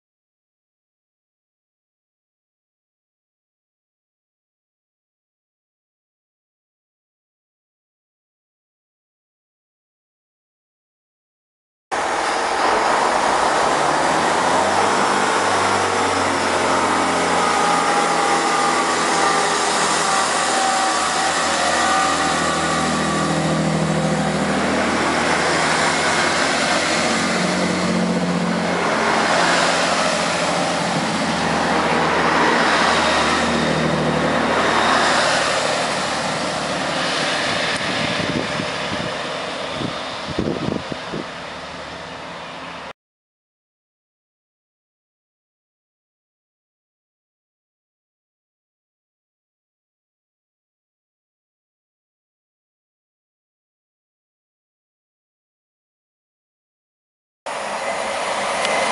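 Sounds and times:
diesel train pulling away: 12.0 - 42.9, 57.5 - 58.9.

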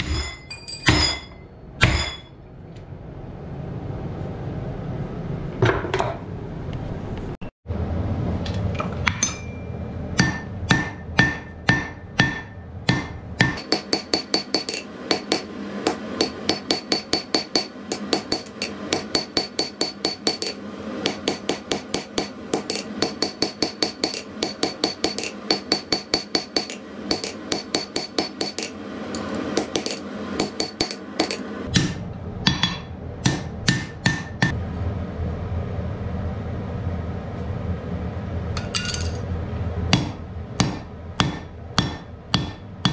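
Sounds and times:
hammer striking anvil: 0.0 - 2.4, 9.0 - 34.6, 38.6 - 39.2, 39.9 - 42.9.

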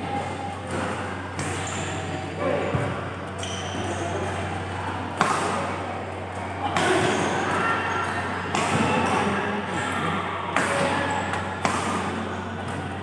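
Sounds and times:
rackets hitting shuttlecock: 0.1 - 9.8, 10.5 - 13.0.

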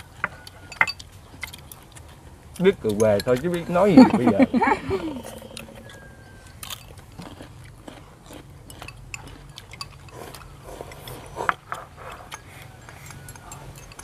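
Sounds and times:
chewing: 0.0 - 4.0, 5.1 - 14.0
chopsticks clicking on bowls: 0.2 - 4.4, 11.7 - 14.0.

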